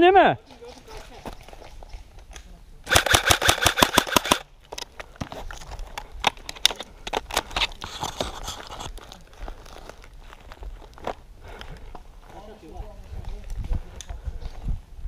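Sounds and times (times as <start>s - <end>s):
airsoft rifle full-auto burst: 2.9s - 4.4s
footsteps in dry undergrowth: 4.5s - 6.3s, 6.9s - 14.9s.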